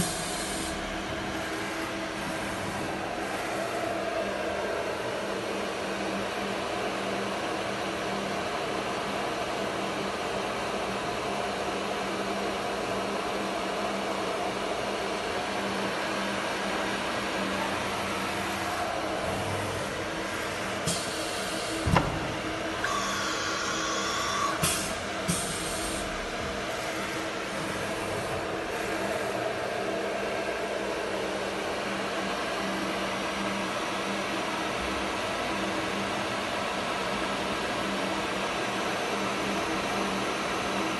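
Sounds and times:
cnc router whirring and humming: 0.0 - 40.9.

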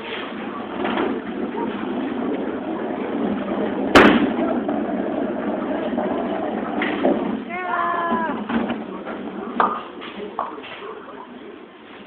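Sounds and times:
bowling alley din: 0.0 - 11.6
sharp bang: 4.0 - 4.4.

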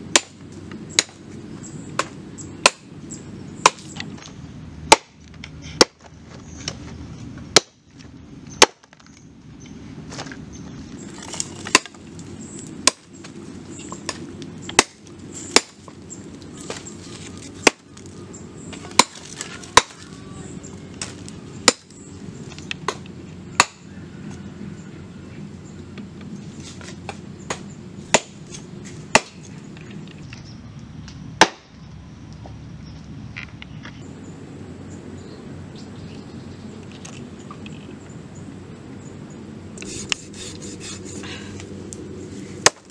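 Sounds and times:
cleaver chopping bone on wood: 0.1 - 0.4, 4.9 - 5.2, 18.9 - 19.2, 19.8 - 20.0, 23.6 - 23.9, 29.2 - 29.4.

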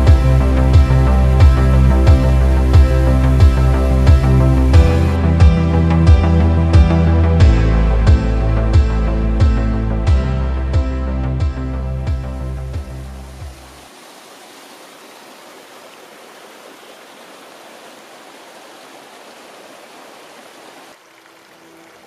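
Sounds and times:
background music: 0.0 - 13.8
stream rushing over rocks: 12.7 - 22.0.

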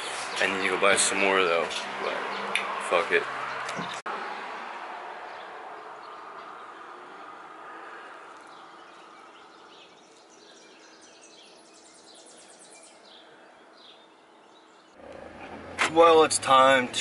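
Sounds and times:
nestling birds cheeping: 5.3 - 15.7.

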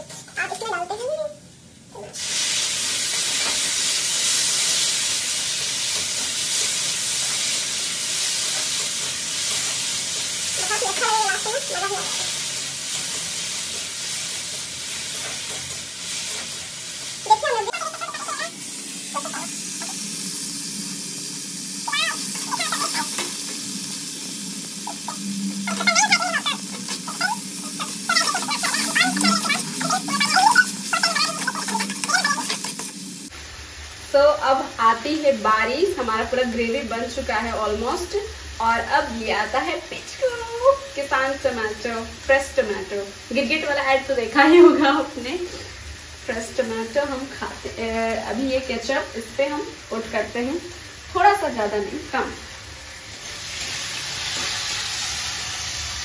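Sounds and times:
food sizzling in a wok: 0.0 - 56.0
spatula stirring in a wok: 2.2 - 18.5, 24.8 - 33.3
high-pitched wavering cries: 21.8 - 23.2, 24.8 - 32.6
spatula stirring: 24.8 - 33.0.

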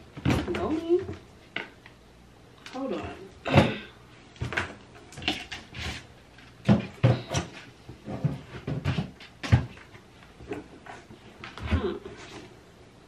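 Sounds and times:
items knocking in a cabinet: 6.6 - 9.9.

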